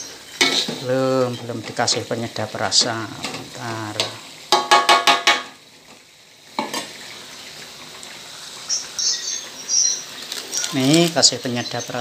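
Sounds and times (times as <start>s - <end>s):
chicken sizzling in a pan: 0.0s - 12.0s
metal spatula scraping a wok: 0.3s - 0.9s.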